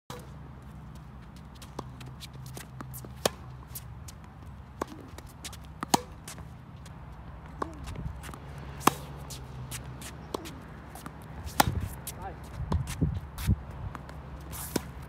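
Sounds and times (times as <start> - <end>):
tennis ball struck by rackets: 1.7 - 6.5, 7.4 - 13.0, 13.8 - 15.0
shoe scuffs: 12.8 - 13.6.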